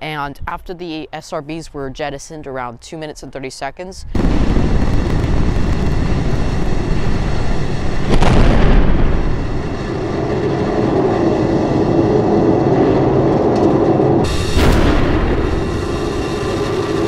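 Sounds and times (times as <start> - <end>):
loud burst: 4.1 - 17.0
rocket engine roar: 4.2 - 17.0.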